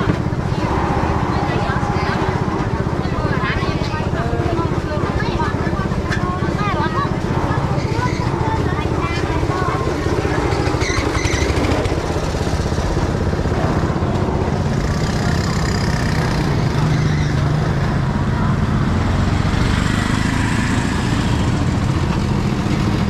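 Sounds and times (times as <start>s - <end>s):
small engine running: 0.0s - 23.0s.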